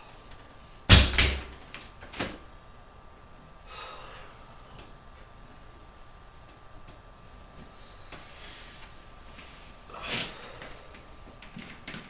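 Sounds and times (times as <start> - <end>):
faint exhale: 3.7 - 4.4.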